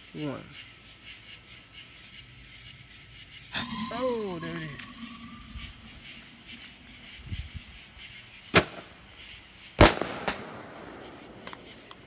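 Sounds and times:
firework bangs: 8.5s - 9.0s, 9.8s - 11.9s.

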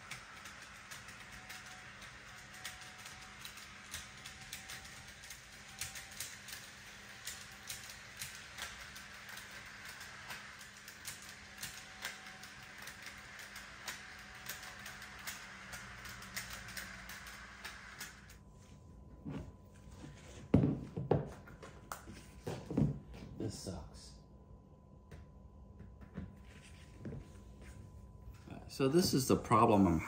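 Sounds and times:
model train motor whirring: 0.0s - 18.3s.

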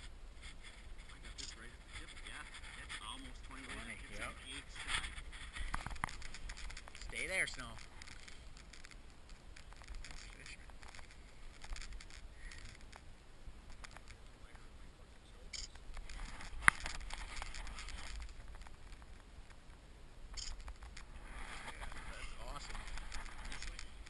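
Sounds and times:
rustling and scraping: 0.0s - 14.7s, 15.6s - 19.8s, 20.4s - 24.0s
sharp click: 15.5s - 16.1s, 20.3s - 20.8s.

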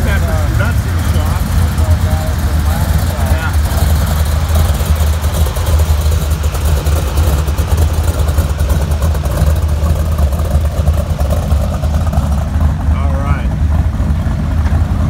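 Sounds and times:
engine idling with pulsing rumble: 0.0s - 15.0s.

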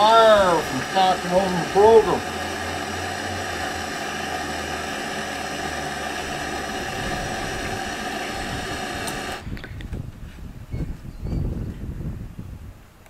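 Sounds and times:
hand torch hissing: 0.0s - 9.6s.

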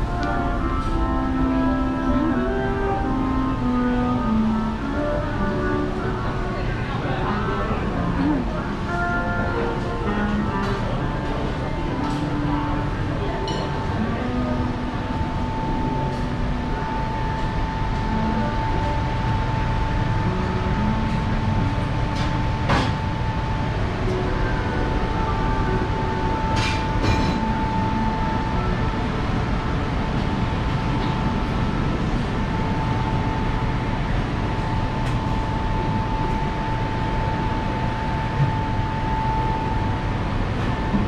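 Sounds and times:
constant high hum: 0.0s - 41.0s
ventilation noise: 0.0s - 41.0s
distant voices murmuring: 4.6s - 41.0s.

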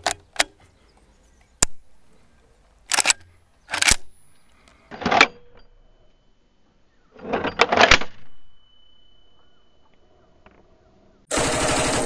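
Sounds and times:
rifle action metallic clacks: 0.0s - 0.6s, 2.8s - 4.3s.

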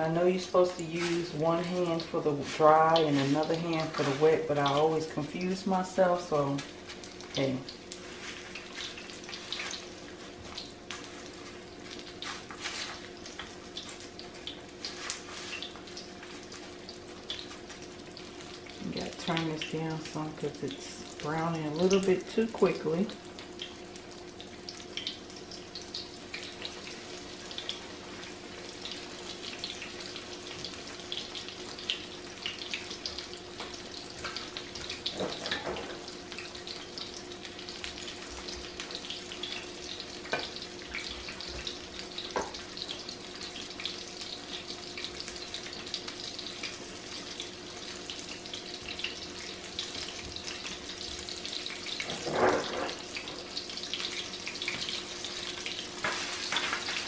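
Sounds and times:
fish deep-frying in oil: 0.0s - 57.0s
low steady hum: 15.6s - 55.8s.

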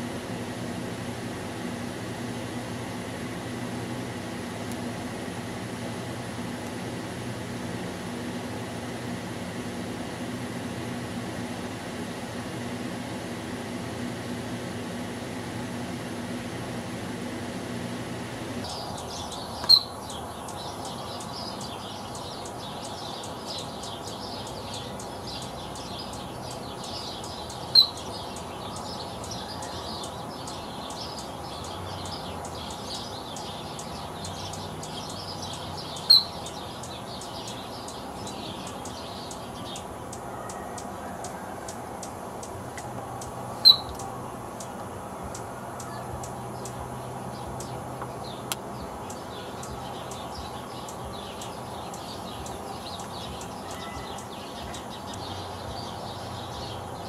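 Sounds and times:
faint small birds twittering: 0.0s - 57.0s
steady low hum: 0.0s - 57.0s
sharp hummingbird chirps: 18.6s - 57.0s.

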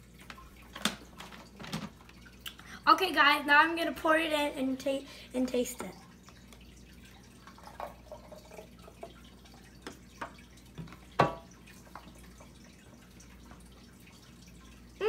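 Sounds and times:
smoothie drips and plops: 0.0s - 2.7s, 5.8s - 15.0s.

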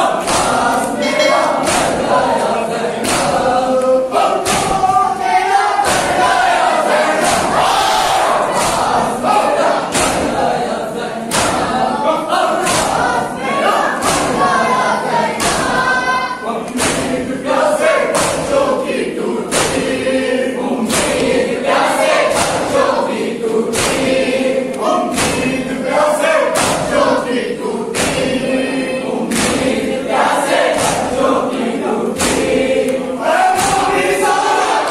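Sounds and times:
men chanting together: 0.0s - 34.9s
palms slapping chests: 0.2s - 2.2s, 3.0s - 3.5s, 11.3s - 11.8s, 12.6s - 13.2s, 14.0s - 14.5s, 16.7s - 17.2s, 19.5s - 20.0s, 23.7s - 24.3s, 25.1s - 25.6s, 32.2s - 32.9s.

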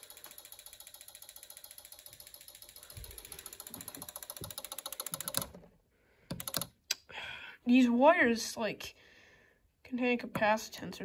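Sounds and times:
alarm circuit clicking rapidly: 0.0s - 5.5s.

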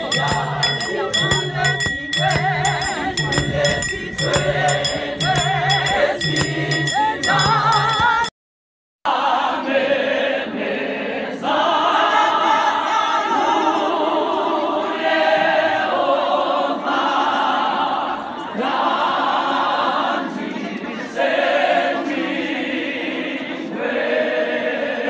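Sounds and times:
percussive beat: 0.0s - 8.3s
women's choir singing: 0.0s - 8.3s, 9.1s - 25.0s.

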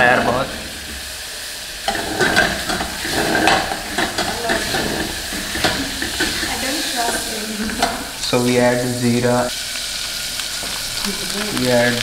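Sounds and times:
butter sizzling in a pot: 0.0s - 12.0s
metal spoon scraping a pot: 1.8s - 8.1s.

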